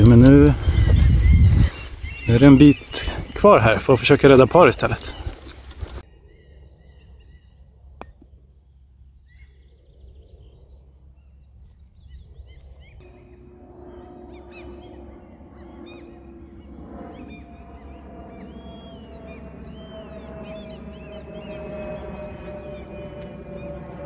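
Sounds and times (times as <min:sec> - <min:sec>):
birdsong: 0:00.0 - 0:24.0
steady low tone: 0:06.0 - 0:21.0.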